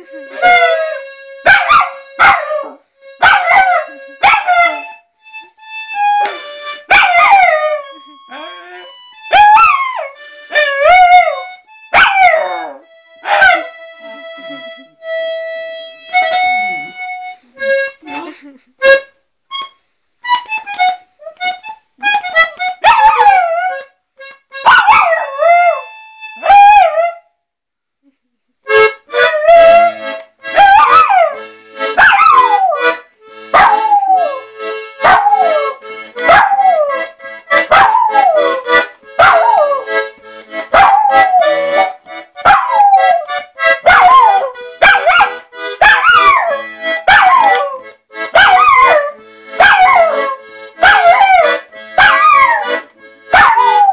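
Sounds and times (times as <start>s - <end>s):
reed instrument music: 0.0s - 27.1s, 28.7s - 53.9s
puppy howling: 6.9s - 8.0s, 9.3s - 13.7s, 22.8s - 23.9s, 24.8s - 27.3s, 29.2s - 30.0s, 30.6s - 31.4s, 32.0s - 32.9s, 33.6s - 37.1s, 37.7s - 38.6s, 39.2s - 39.9s, 40.7s - 43.3s, 43.9s - 53.9s.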